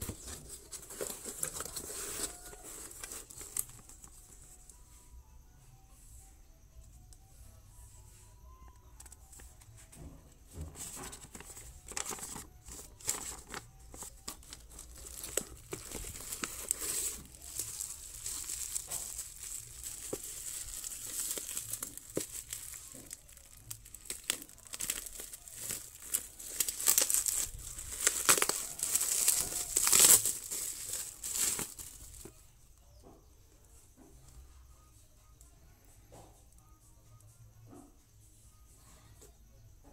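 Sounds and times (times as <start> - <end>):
bubble wrap crinkling: 0.0 - 4.7, 10.9 - 32.4.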